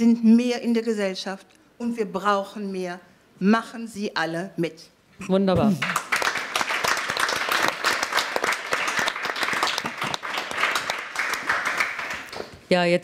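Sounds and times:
applause: 0:05.8 - 0:12.6.

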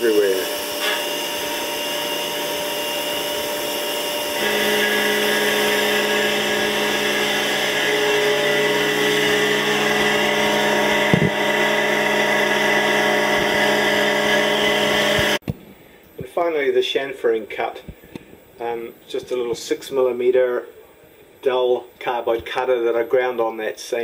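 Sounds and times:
milling machine spindle whine: 0:00.0 - 0:15.4.

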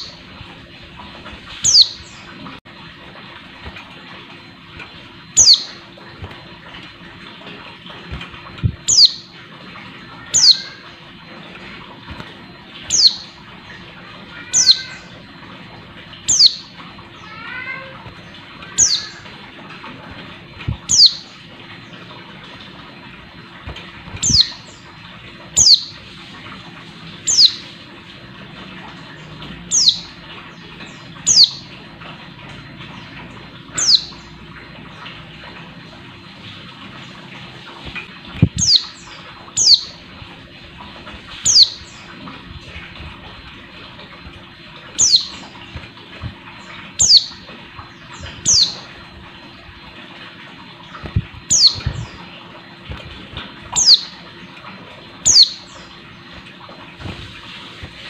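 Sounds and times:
soft bird twittering: 0:01.6 - 0:02.4, 0:05.3 - 0:05.8, 0:08.8 - 0:09.4, 0:10.2 - 0:10.9, 0:12.8 - 0:13.5, 0:14.4 - 0:15.2, 0:16.2 - 0:17.9, 0:18.6 - 0:19.3, 0:20.8 - 0:21.4, 0:24.2 - 0:26.1, 0:27.2 - 0:27.8, 0:29.2 - 0:31.8, 0:32.9 - 0:34.4, 0:38.6 - 0:40.0, 0:41.4 - 0:42.2, 0:45.0 - 0:45.8, 0:46.6 - 0:48.9, 0:51.0 - 0:52.3, 0:53.7 - 0:54.2, 0:55.2 - 0:56.3
wings fluttering: 0:50.9 - 0:58.0.

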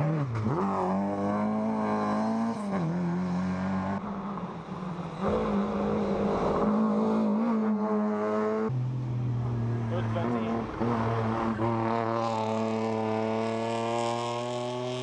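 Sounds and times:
car engine at high revs: 0:00.0 - 0:15.0
rally car engine accelerating: 0:05.2 - 0:15.0.

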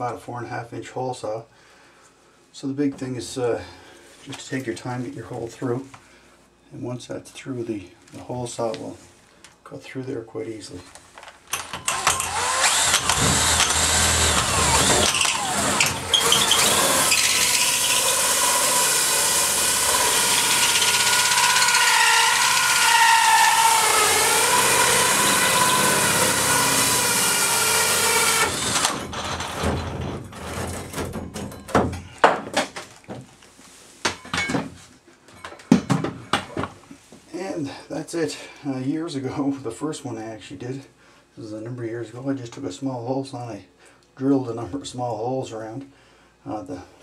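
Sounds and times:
drill hole saw grinding: 0:11.6 - 0:29.6.

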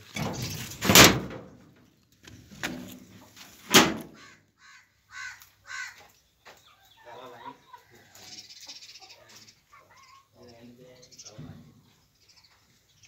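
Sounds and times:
metal gate banging and scraping: 0:00.0 - 0:01.6, 0:03.7 - 0:04.2
chicken calls: 0:04.0 - 0:13.0.

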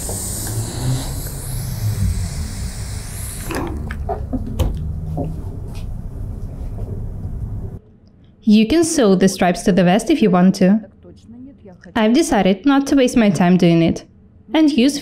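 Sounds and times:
steam iron hissing: 0:00.0 - 0:03.9
low steady hum: 0:00.0 - 0:15.0.

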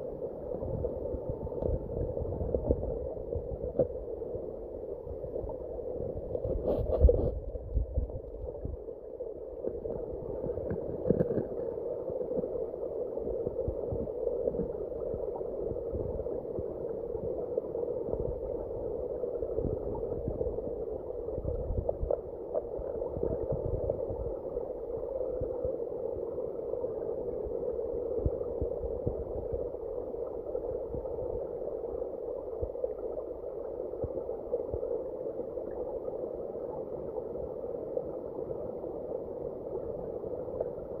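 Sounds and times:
muffled underwater creek flow: 0:00.0 - 0:41.0
low underwater knocks and clicks: 0:10.5 - 0:11.6.

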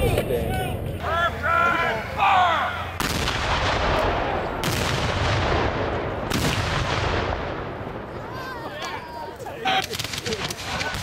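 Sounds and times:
cannons firing with rolling echo: 0:03.0 - 0:08.3, 0:09.7 - 0:11.0.

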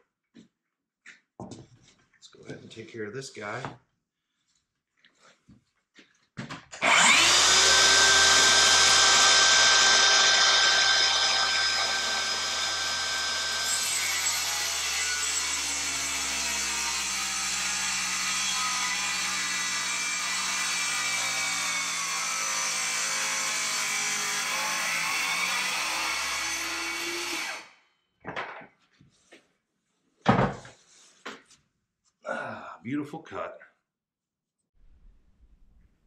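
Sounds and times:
power saw cutting wood: 0:06.8 - 0:27.7.

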